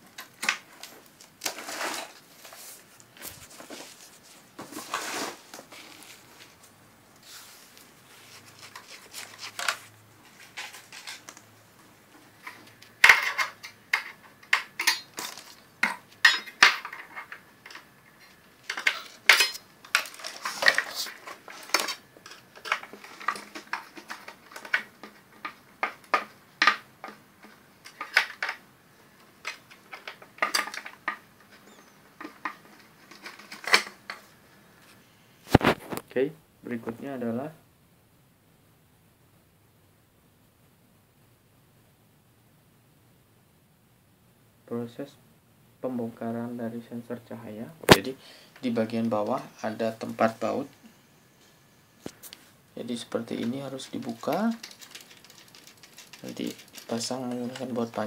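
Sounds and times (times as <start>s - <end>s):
small hard objects clinking: 53.4s - 58.0s.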